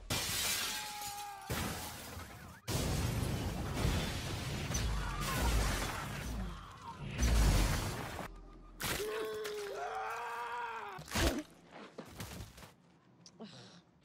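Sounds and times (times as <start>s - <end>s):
window glass shattering: 0.1s - 3.2s.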